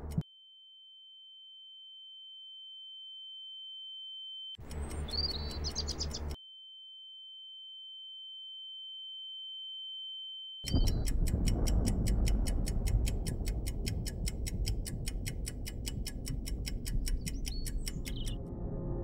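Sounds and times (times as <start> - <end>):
high-pitched electronic sine tone: 0.0 - 5.5, 6.3 - 10.8
high chirps: 4.6 - 6.4, 17.1 - 18.4
low pulsing thuds: 10.7 - 18.4
rapid ticking: 10.7 - 18.4.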